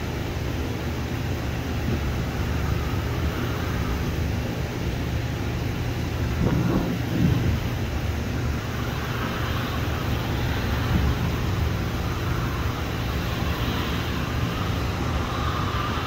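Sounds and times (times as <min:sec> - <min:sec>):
jet engines rumbling: 0:00.0 - 0:16.0.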